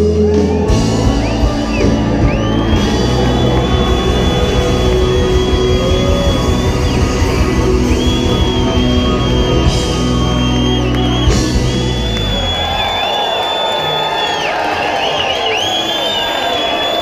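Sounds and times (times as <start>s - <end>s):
pop-rock band playing loudly: 0.0s - 13.0s
faint crowd: 0.0s - 17.0s.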